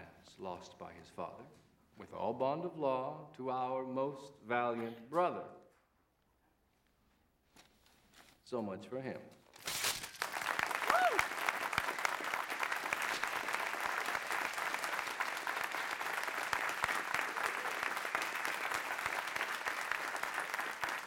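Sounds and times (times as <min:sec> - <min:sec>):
audience applauding: 0:10.1 - 0:21.0.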